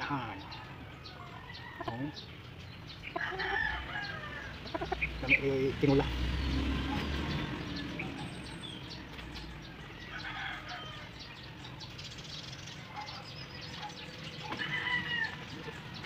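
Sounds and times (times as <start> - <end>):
chickens clucking and chirping: 0.0 - 16.0
loud chicken call: 14.4 - 15.9.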